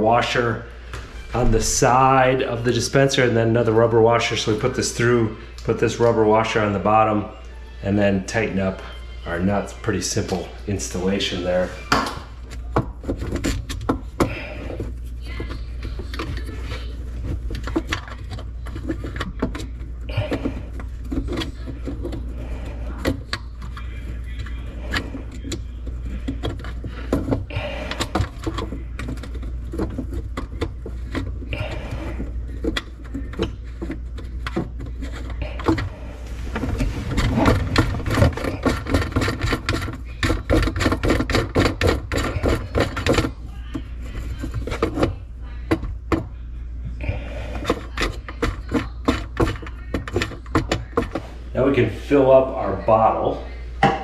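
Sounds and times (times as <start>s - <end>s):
fittings clicking and scraping: 9.3s - 46.4s, 47.0s - 52.4s.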